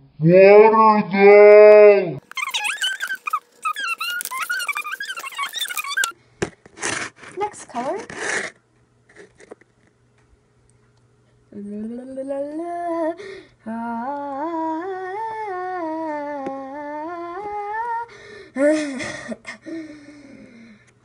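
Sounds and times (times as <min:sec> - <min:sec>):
person humming: 0:11.5 - 0:19.0.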